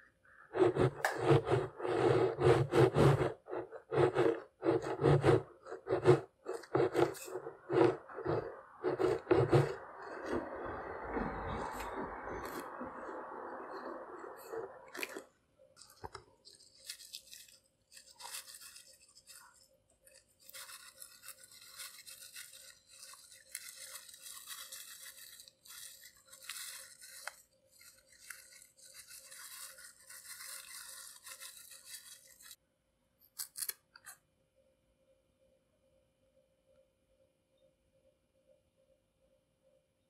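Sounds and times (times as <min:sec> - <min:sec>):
plastic packet crinkling: 0:05.6 - 0:10.6, 0:11.6 - 0:32.6
sprinkles pattering from packet: 0:15.8 - 0:32.6.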